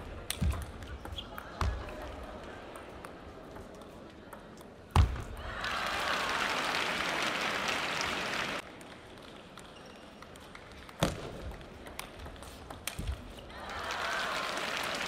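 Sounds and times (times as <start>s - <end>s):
crowd applauding and cheering: 5.5s - 8.6s, 13.5s - 15.0s.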